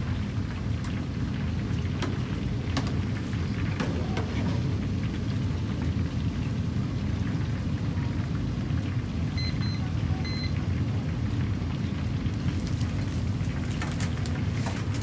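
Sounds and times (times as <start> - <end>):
oil sizzling in deep fryer: 0.0 - 15.0
short electronic beeps: 9.4 - 10.5.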